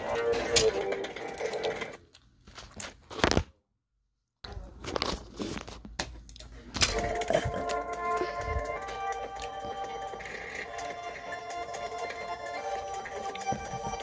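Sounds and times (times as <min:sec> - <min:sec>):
background music: 0:00.0 - 0:01.9, 0:06.8 - 0:14.0.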